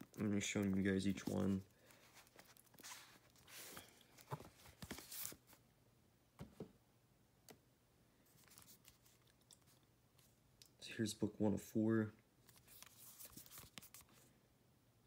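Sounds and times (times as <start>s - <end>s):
books rustling and sliding: 1.0s - 5.6s.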